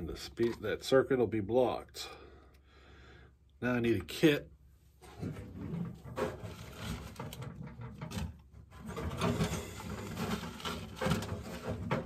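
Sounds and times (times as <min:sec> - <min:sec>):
rummaging on a shelf: 0:05.0 - 0:12.0.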